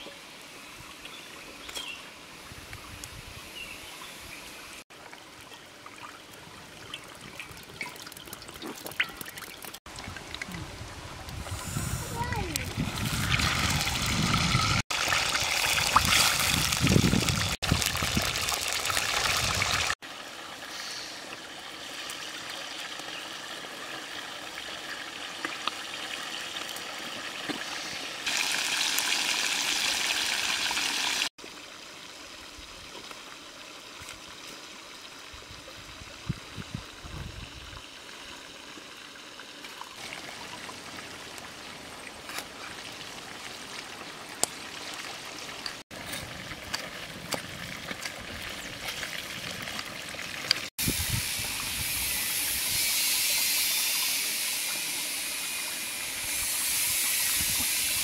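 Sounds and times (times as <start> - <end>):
fish sizzling in hot oil: 13.0 - 27.2, 27.8 - 31.3, 50.0 - 58.0.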